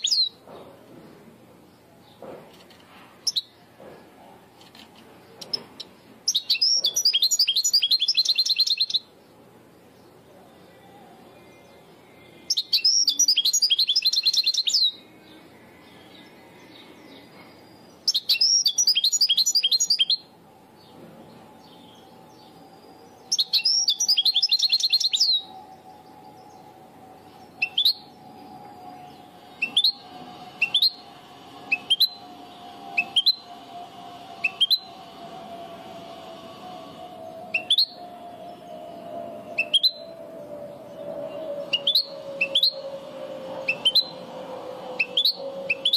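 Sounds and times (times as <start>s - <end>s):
goldfinch twittering song: 5.4s - 9.0s, 12.5s - 15.0s, 16.2s - 20.2s, 23.2s - 25.5s
bird rising call notes: 10.7s - 45.9s.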